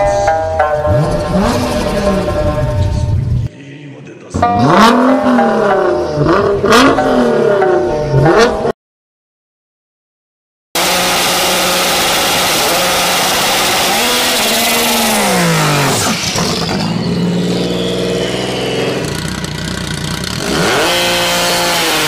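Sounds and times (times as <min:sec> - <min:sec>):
loud rough car engine revving: 0:00.8 - 0:03.4, 0:04.4 - 0:08.7, 0:10.8 - 0:22.0.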